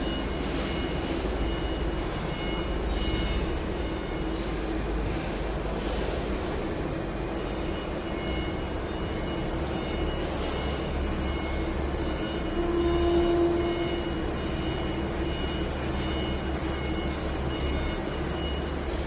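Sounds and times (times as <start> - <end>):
industrial machinery humming: 0.0 - 19.0.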